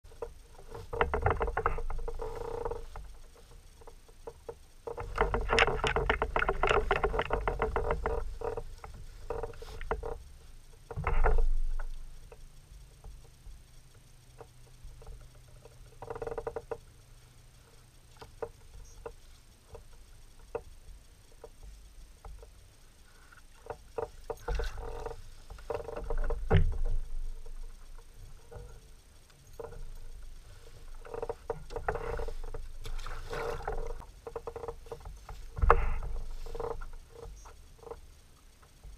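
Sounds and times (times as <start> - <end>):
knocks and rattles against kayak: 0.1 - 38.9
fishing reel clicking: 0.2 - 38.9
bumps and splashes: 29.7 - 37.1.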